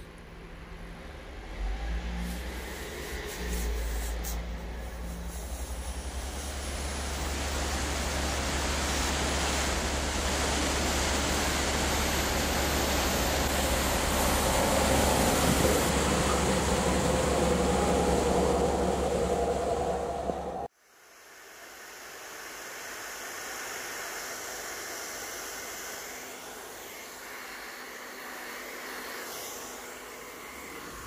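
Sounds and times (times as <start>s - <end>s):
diesel engine drone: 0.0s - 20.7s
hiss of flung snow: 1.8s - 18.4s, 21.0s - 31.0s.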